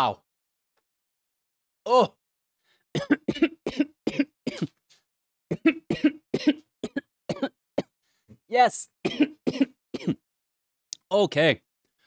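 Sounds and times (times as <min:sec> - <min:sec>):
man coughing: 0:03.0 - 0:04.8, 0:05.5 - 0:07.5, 0:09.1 - 0:10.2.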